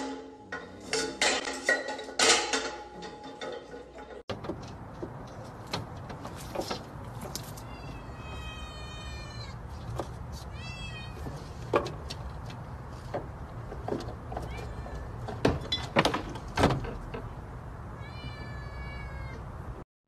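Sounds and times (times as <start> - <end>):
cat meowing: 7.6 - 9.6, 10.5 - 11.2, 18.0 - 19.5.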